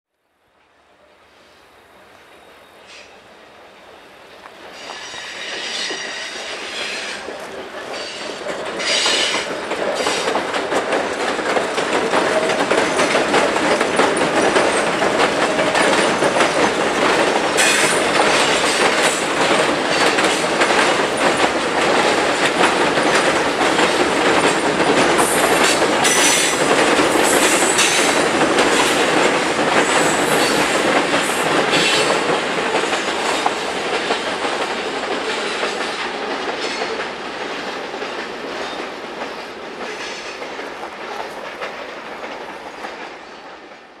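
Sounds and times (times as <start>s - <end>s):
train wheels clacking on rail joints: 4.4s - 44.0s
high wheel squeals: 4.7s - 7.3s.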